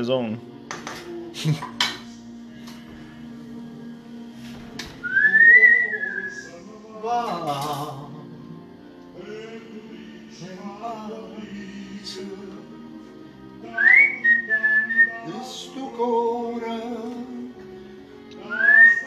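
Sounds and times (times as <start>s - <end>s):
man whistling a tune: 5.0s - 6.6s, 13.7s - 15.4s, 18.4s - 19.0s.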